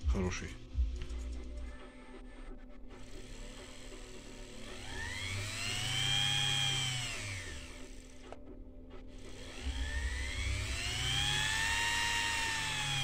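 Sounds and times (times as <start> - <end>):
electric motor whining: 3.0 - 8.4, 9.2 - 13.0.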